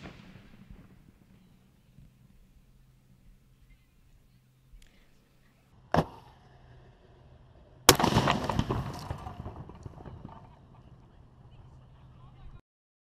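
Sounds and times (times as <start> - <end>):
firework bang: 0.0 - 2.4, 5.9 - 6.4, 7.9 - 11.1
firework explosion: 0.0 - 3.6, 7.8 - 12.0
firework crackling: 0.0 - 5.2, 7.9 - 12.2.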